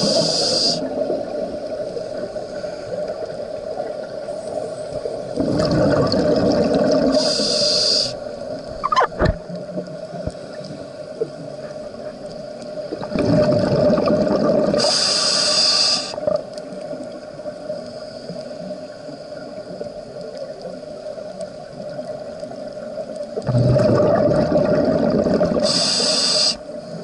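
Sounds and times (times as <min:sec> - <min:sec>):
regulator high hiss: 0:00.0 - 0:00.9, 0:07.1 - 0:08.4, 0:14.8 - 0:16.2, 0:25.6 - 0:26.8
scuba exhale bubbles rushing: 0:05.1 - 0:07.7, 0:12.9 - 0:15.4, 0:23.4 - 0:26.5
short sliding squeak: 0:08.8 - 0:09.3.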